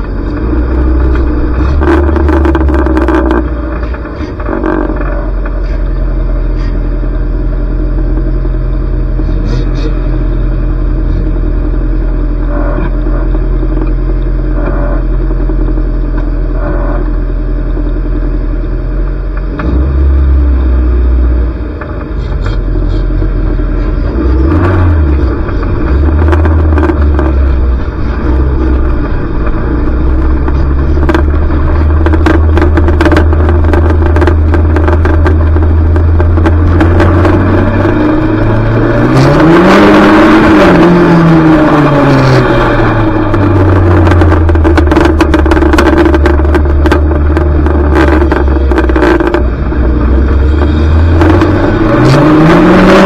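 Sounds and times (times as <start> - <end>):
race car engine under load: 0.0 - 53.0
cars knocking together: 21.8 - 39.0, 42.6 - 52.1.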